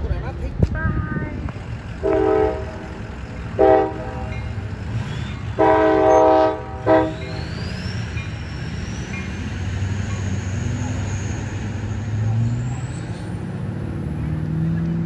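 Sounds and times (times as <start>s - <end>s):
low train rumble: 0.0s - 15.0s
traffic: 0.0s - 15.0s
train horn blasts: 2.0s - 4.5s, 5.5s - 7.4s.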